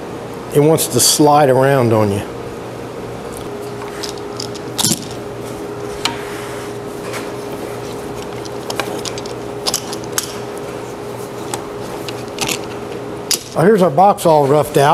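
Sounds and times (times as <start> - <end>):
steady hum: 0.0 - 14.9
metal clamps clicking: 3.6 - 5.2, 7.5 - 13.7.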